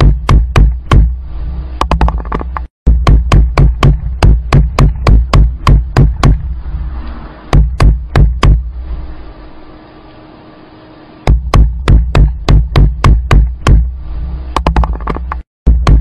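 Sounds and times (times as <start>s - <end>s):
rapid knocking with thuds: 0.0s - 1.2s, 1.8s - 6.5s, 7.5s - 8.6s, 11.3s - 13.9s, 14.6s - 16.0s.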